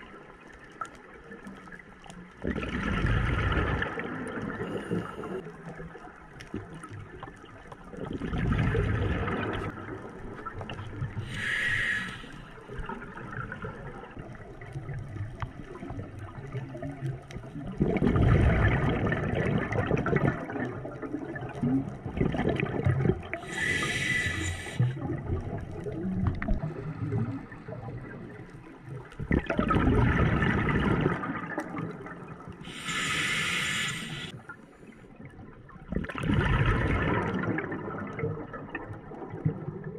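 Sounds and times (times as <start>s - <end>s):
exhaled bubbles rumbling: 0.0s - 12.0s, 12.6s - 33.4s, 35.2s - 39.9s
regulator hissing inhalations: 11.2s - 12.6s, 23.4s - 25.0s, 32.6s - 34.4s.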